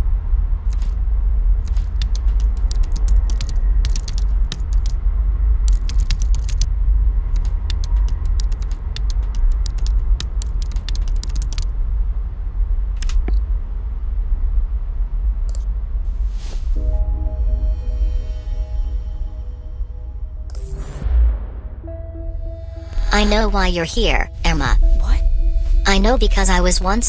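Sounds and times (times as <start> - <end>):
keyboard typing: 0.7 - 1.0, 1.6 - 5.0, 5.7 - 6.7, 7.3 - 11.7, 13.0 - 13.4
steady deep drone: 16.8 - 27.0.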